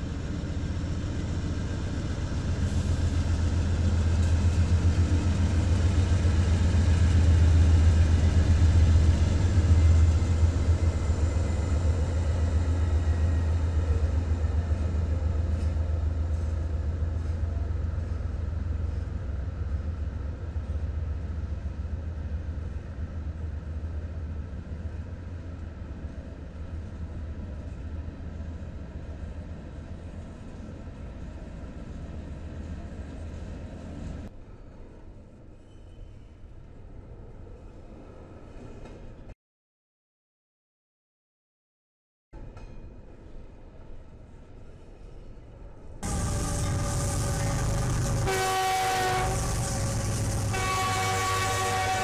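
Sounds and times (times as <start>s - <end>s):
locomotive engines droning: 46.0s - 52.0s.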